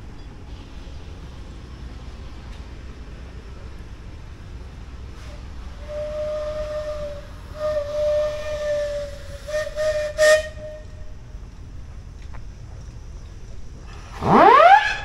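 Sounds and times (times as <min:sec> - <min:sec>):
steam whistle blasts: 0:05.2 - 0:11.1, 0:14.1 - 0:15.0.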